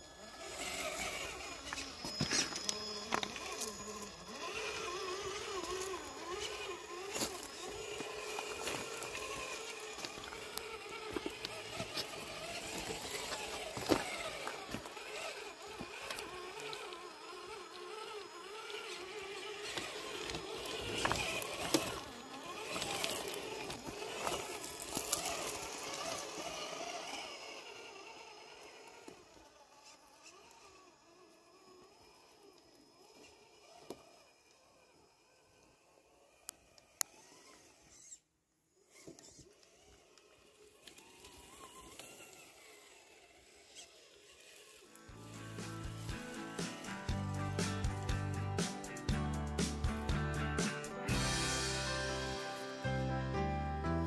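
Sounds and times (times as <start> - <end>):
electric motor and gears whining: 0.0 - 54.0
knocks and clacks of tires on rocks: 0.6 - 27.2.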